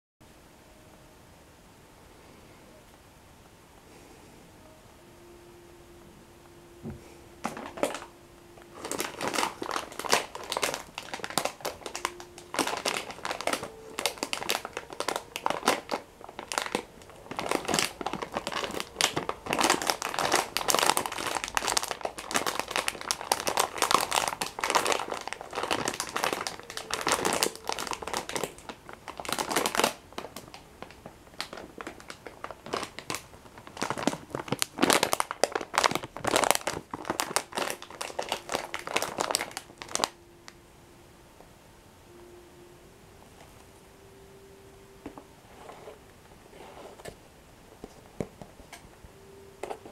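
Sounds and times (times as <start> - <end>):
plastic packet crinkling: 7.4 - 40.2.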